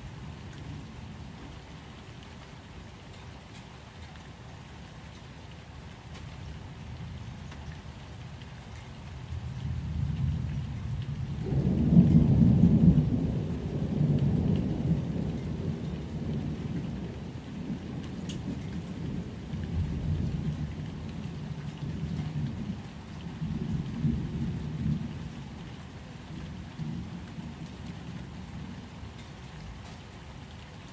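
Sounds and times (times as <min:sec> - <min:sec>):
steady rain: 0:00.0 - 0:30.9
thunder rumbling: 0:09.7 - 0:22.8.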